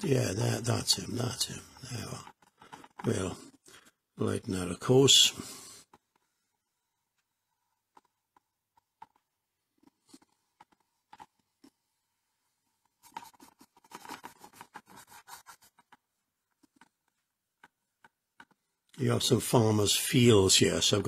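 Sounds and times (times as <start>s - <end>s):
paintbrush scratchy scrubbing: 12.4s - 18.6s.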